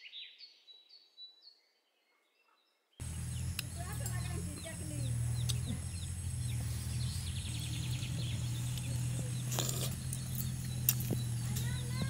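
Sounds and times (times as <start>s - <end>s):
birds chirping: 2.7s - 12.0s
sharp clicks: 3.0s - 12.0s
steady low hum: 3.0s - 12.0s.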